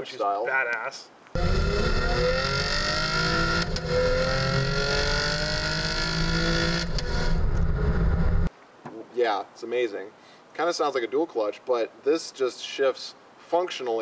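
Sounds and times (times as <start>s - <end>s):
car engine accelerating: 1.4s - 8.5s
low exhaust rumble: 6.8s - 8.5s.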